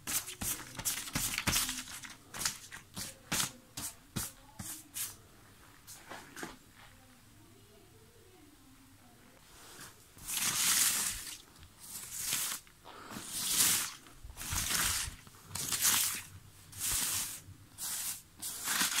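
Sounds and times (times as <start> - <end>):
banknotes rustling: 0.0 - 5.2, 9.6 - 19.0.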